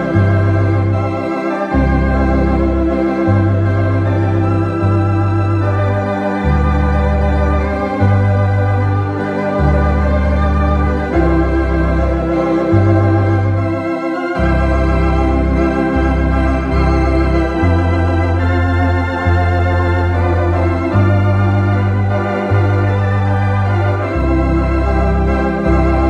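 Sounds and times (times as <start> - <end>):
electronic organ chords: 0.0 - 26.0.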